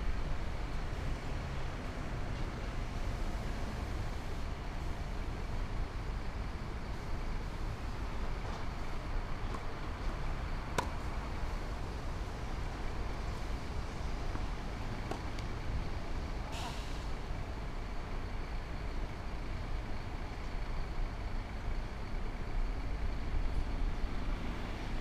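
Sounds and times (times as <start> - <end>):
low outdoor rumble: 0.0 - 25.0
tennis ball struck by racquet: 10.7 - 11.1.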